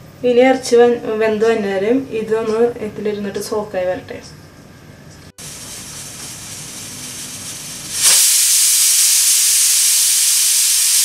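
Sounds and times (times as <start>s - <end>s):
pressure cooker steam hissing: 5.4s - 11.0s.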